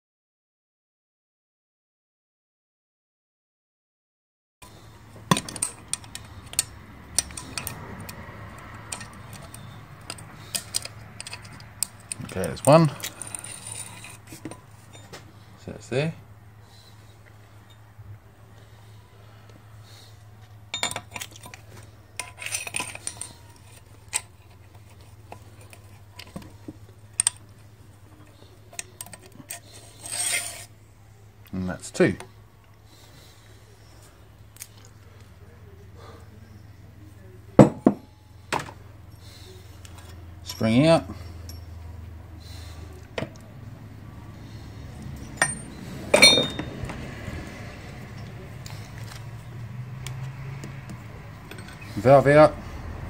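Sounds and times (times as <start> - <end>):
sharp metallic clicks and clinks: 4.6 - 15.1, 20.7 - 21.6, 27.1 - 27.5, 28.2 - 30.7, 45.0 - 47.0, 50.0 - 52.1.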